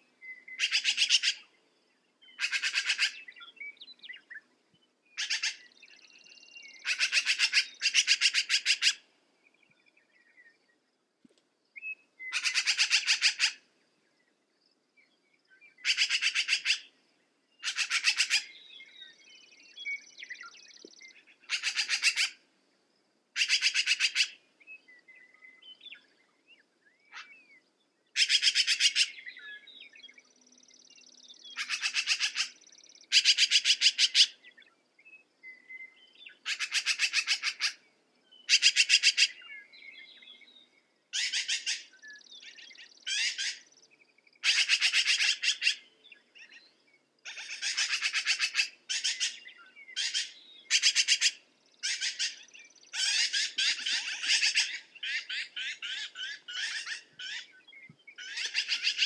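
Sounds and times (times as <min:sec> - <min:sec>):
soft bird chirps: 0:00.0 - 0:22.8, 0:23.4 - 0:59.0
magpie chattering: 0:02.4 - 0:03.2, 0:17.6 - 0:18.5, 0:21.5 - 0:22.4, 0:36.5 - 0:37.8.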